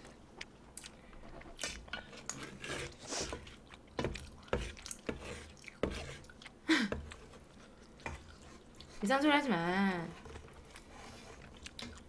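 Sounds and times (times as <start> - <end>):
spoon scrape: 1.6 - 3.6, 4.5 - 6.3.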